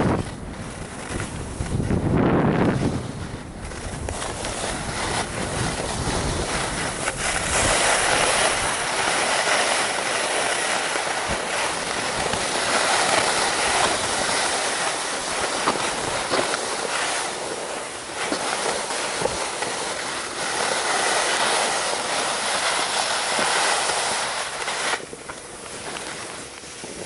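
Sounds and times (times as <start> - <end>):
skis scraping over snow: 0.0 - 27.0.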